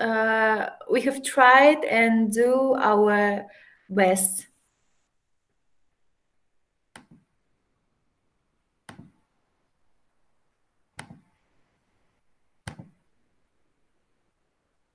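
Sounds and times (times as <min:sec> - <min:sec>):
computer mouse clicks: 0:06.9 - 0:07.3, 0:08.9 - 0:09.2, 0:11.0 - 0:11.3, 0:12.6 - 0:13.0.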